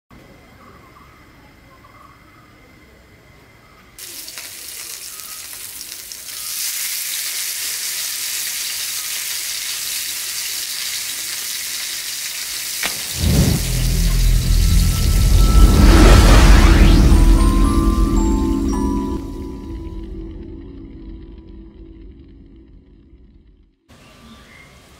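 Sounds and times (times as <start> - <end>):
fish sizzling in hot oil: 4.0 - 13.9
deep rumbling whoosh: 12.9 - 23.9.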